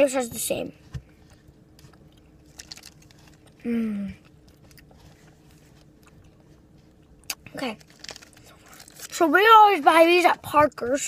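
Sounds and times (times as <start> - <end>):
child chewing gummy candy: 1.1 - 9.5
soft mouth clicks: 7.2 - 7.5.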